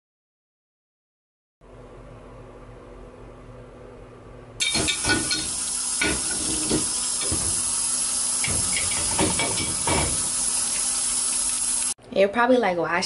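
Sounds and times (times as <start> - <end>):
dishes and glasses clinking: 4.6 - 7.5, 8.4 - 10.2
water running into sink: 4.6 - 12.0.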